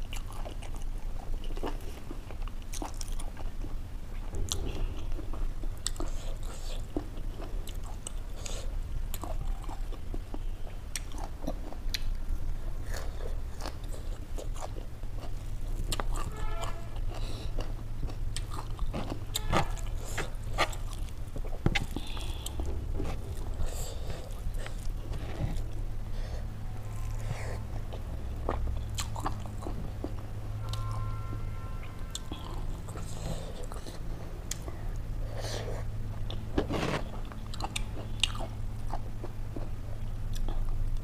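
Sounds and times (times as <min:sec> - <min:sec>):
chewing and crunching food: 0:00.0 - 0:31.4, 0:32.1 - 0:41.0
low hum: 0:08.8 - 0:41.0.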